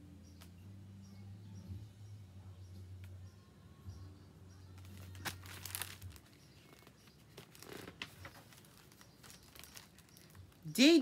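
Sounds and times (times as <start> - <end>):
paper rustling and crinkling: 4.8 - 10.7.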